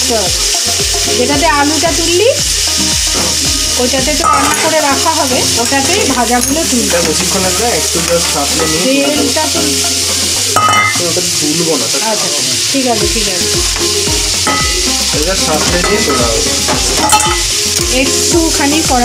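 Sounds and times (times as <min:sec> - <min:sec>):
crab sizzling in hot oil: 0:00.0 - 0:19.0
spatula stirring in pan: 0:00.2 - 0:19.0
spatula clinking against pan: 0:04.2 - 0:05.0, 0:05.6 - 0:11.0, 0:14.4 - 0:14.9, 0:15.8 - 0:17.9.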